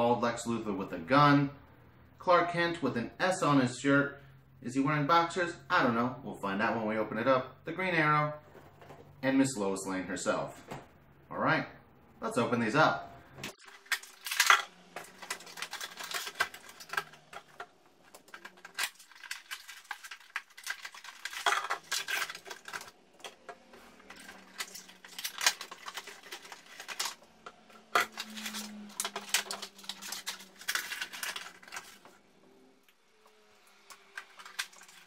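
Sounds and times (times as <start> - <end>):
cardboard and plastic crinkling: 13.5 - 32.2, 33.9 - 35.0.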